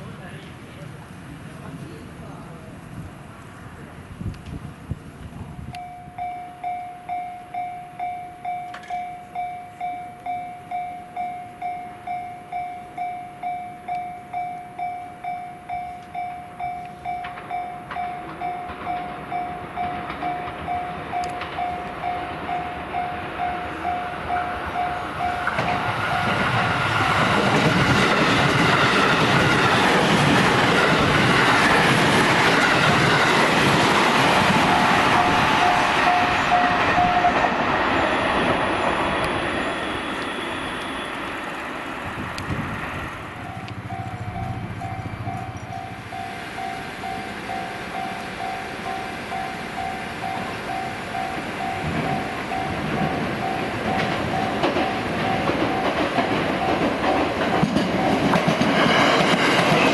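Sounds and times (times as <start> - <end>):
electric train passing: 0.0 - 59.9
level crossing warning bell: 5.6 - 29.7, 34.3 - 37.5, 43.3 - 59.9.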